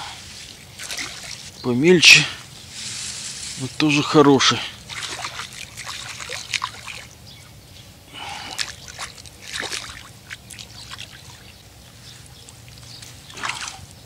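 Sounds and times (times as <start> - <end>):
pond water splashing: 0.0 - 2.5, 3.8 - 7.3, 8.1 - 14.0
water dripping: 8.5 - 11.6.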